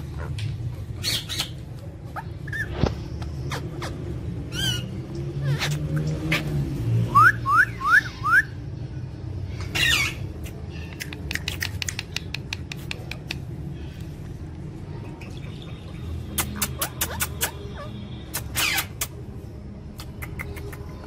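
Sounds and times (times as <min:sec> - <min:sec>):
parakeets squawking: 0:00.0 - 0:08.6, 0:09.6 - 0:12.3, 0:14.8 - 0:19.3.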